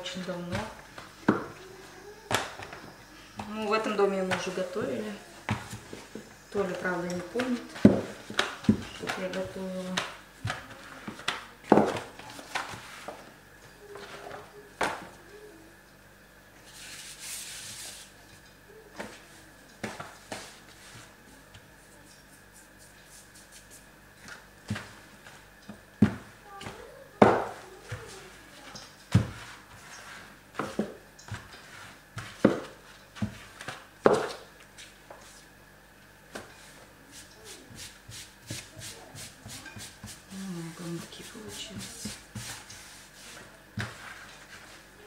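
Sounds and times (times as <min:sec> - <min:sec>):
rolling pin rolling dough: 0:00.0 - 0:15.1, 0:18.9 - 0:35.5, 0:36.3 - 0:45.0
hand rubbing flour on cloth: 0:16.7 - 0:18.2, 0:21.8 - 0:23.9, 0:31.4 - 0:33.7, 0:36.6 - 0:45.0.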